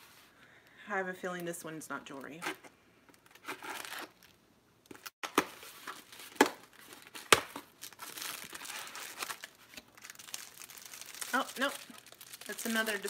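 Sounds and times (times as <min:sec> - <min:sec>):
plastic wrapping crinkling: 0:03.1 - 0:13.0.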